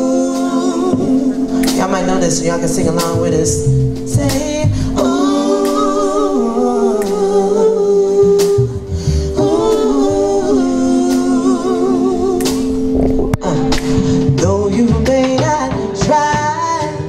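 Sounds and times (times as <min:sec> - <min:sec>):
woman singing into microphone: 0:00.0 - 0:02.0, 0:04.2 - 0:13.8
bass guitar line: 0:00.0 - 0:17.0.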